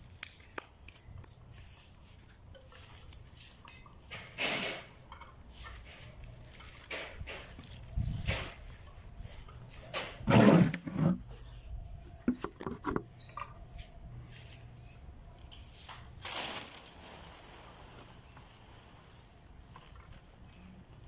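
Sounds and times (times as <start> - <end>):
plastic bag rustling and dragging: 4.2 - 8.9, 10.2 - 11.6, 15.7 - 20.4.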